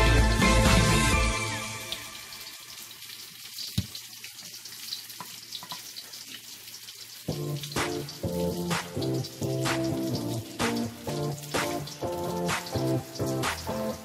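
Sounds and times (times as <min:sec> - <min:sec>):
background music: 0:00.0 - 0:02.6, 0:07.3 - 0:14.0
oil sizzling in a pan: 0:00.0 - 0:14.0.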